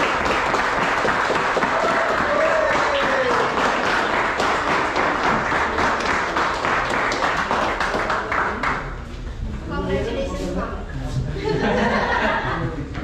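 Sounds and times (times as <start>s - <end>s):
people clapping: 0.0s - 9.2s.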